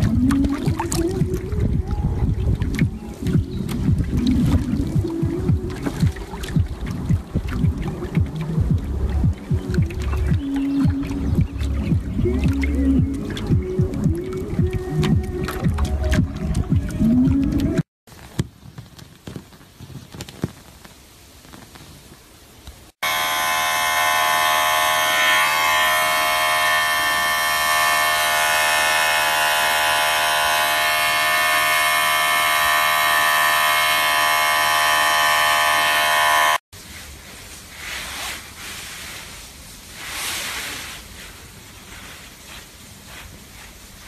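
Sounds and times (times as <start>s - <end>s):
electric clippers buzzing: 23.0s - 36.6s
faint hiss: 36.8s - 44.0s.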